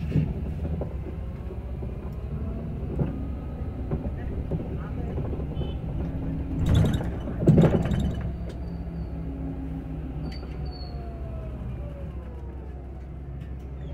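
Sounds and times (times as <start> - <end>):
bus road rumble: 0.0 - 13.9.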